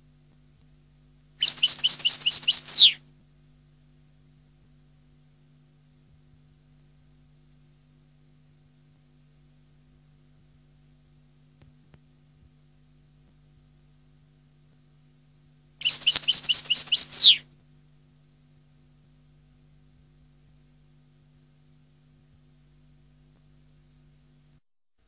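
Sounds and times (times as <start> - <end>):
goldfinch singing: 1.4 - 3.0, 15.8 - 17.4.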